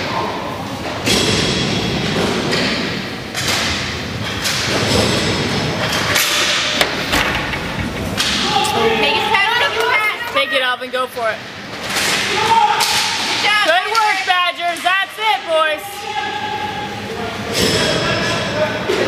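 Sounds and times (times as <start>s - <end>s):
skate wheels rumbling: 4.2s - 10.6s
people shouting: 8.3s - 10.7s, 12.2s - 13.6s, 15.8s - 17.0s.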